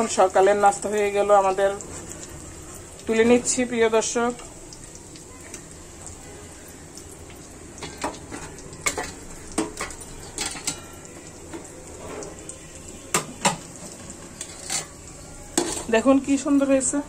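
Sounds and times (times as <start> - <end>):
oil sizzling: 0.0 - 17.0
metal utensil clinking against pan: 7.3 - 12.4, 13.1 - 16.1.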